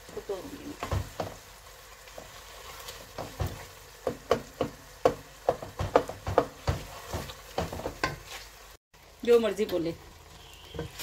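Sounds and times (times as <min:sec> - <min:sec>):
wooden spoon knocking pot: 0:03.2 - 0:08.2.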